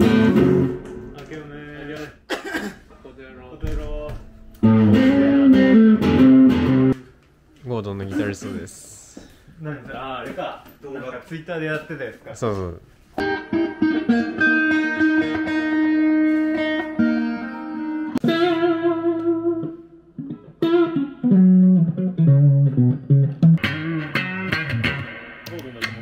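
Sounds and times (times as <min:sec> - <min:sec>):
electric guitar chords: 0:00.0 - 0:01.3, 0:04.2 - 0:07.0, 0:13.2 - 0:26.0
low guitar single notes: 0:00.0 - 0:01.5, 0:03.7 - 0:07.0, 0:13.2 - 0:26.0.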